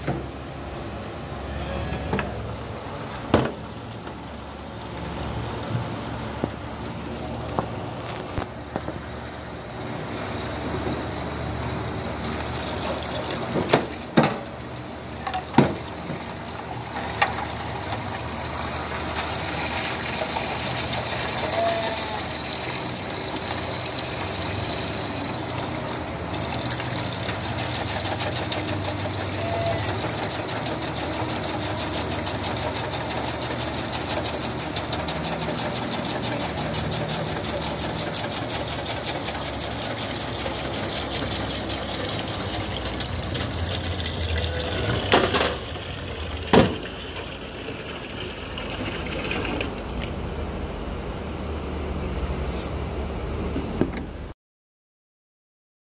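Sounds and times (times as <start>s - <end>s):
steady motor hum: 0.0s - 54.2s
tap water running into basin: 10.3s - 50.4s
brush scrubbing metal pail: 26.4s - 46.9s.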